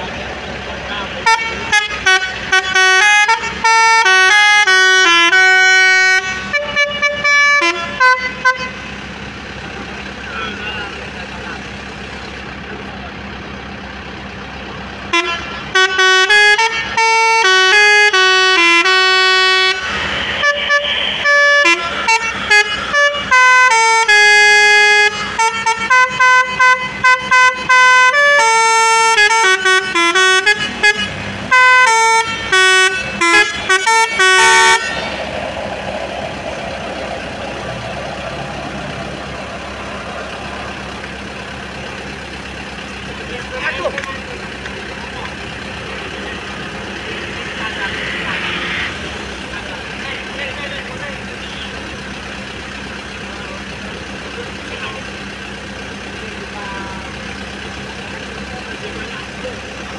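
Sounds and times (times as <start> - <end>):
multi-tone musical horn playing tune: 1.2 - 8.8, 15.1 - 35.2.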